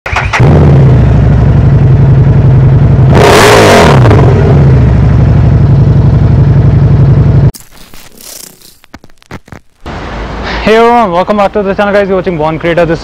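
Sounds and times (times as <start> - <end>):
motorcycle engine idling: 1.0 - 3.1, 4.8 - 7.5.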